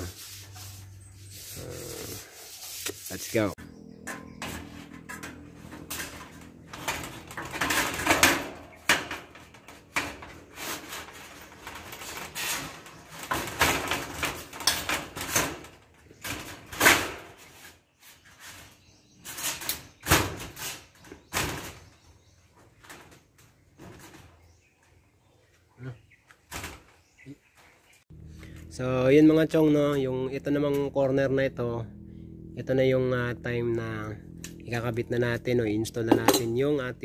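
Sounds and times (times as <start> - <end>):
sheet metal scraping and knocking: 3.9 - 17.7.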